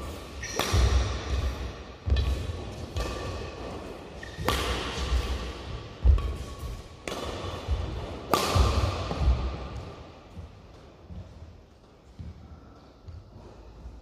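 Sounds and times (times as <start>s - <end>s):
racket striking shuttlecock: 0.1s - 10.5s.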